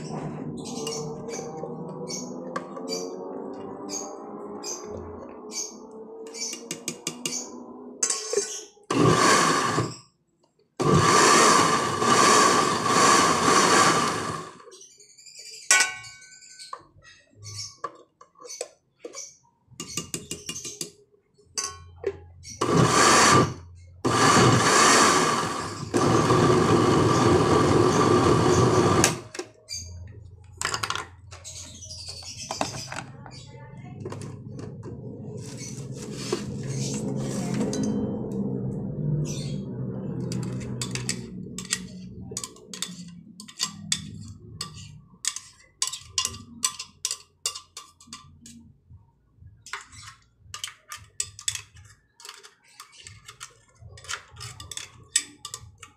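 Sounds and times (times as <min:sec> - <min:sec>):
blender running: 0:08.9 - 0:10.0, 0:10.8 - 0:14.6, 0:22.6 - 0:29.3.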